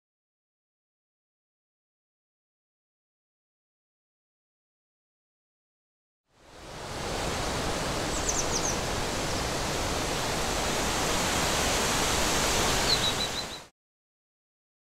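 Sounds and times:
rushing nature ambience: 6.3 - 13.7.

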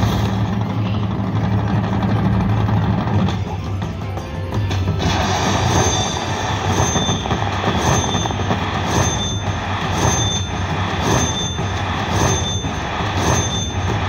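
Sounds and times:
short high ding: 5.6 - 14.0.

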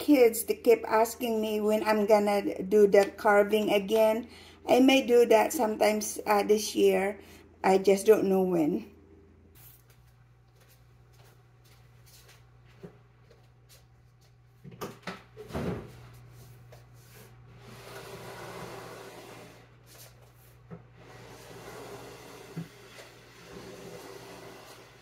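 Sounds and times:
furniture scraping across floor: 17.0 - 25.0.

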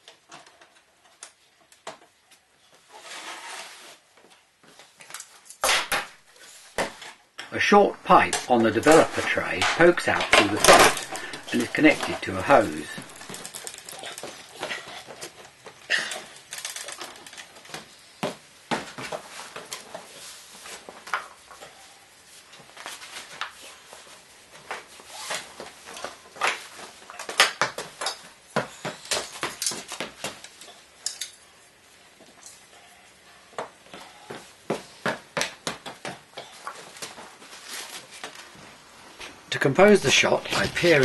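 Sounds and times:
handling clicks and knocks: 6.8 - 17.8
cloth rustling: 7.9 - 17.7.

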